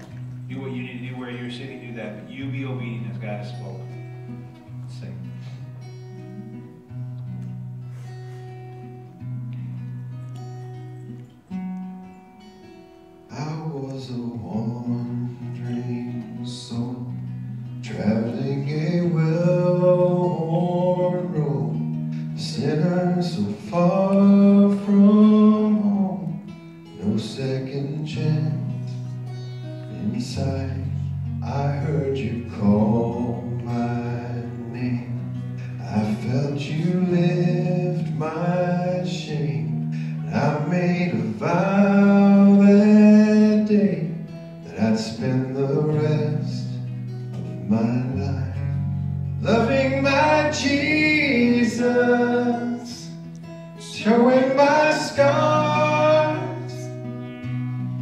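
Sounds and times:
acoustic guitar: 0.0 - 58.0
sustained low backing notes: 0.0 - 58.0
man singing into a microphone: 13.3 - 26.4, 27.0 - 28.9, 29.9 - 46.8, 47.6 - 48.8, 49.4 - 53.2, 53.8 - 57.1.

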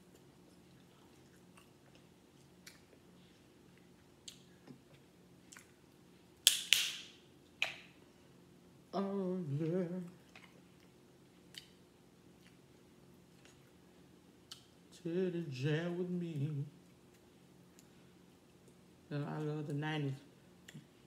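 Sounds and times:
person humming a tune: 9.0 - 10.2.

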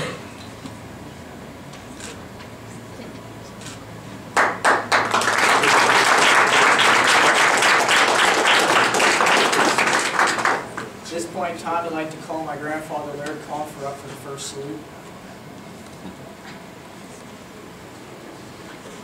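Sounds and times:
audience applauding: 4.4 - 10.8.

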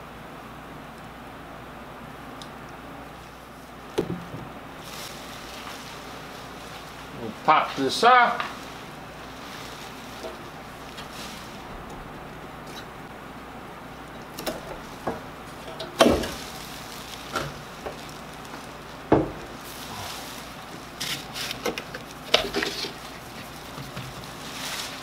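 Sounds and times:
handling noises: 3.6 - 13.1, 14.0 - 25.0
plastic poncho rustling: 4.7 - 13.1, 14.0 - 25.0.

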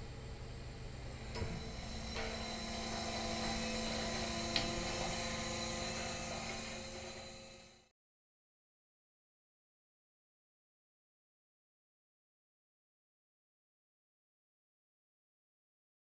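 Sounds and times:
ship engine hum with high whine: 0.0 - 7.9.

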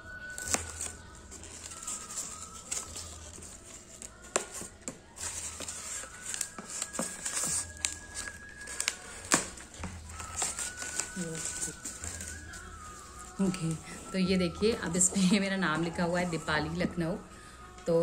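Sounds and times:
foam packing crackling: 0.2 - 14.2.

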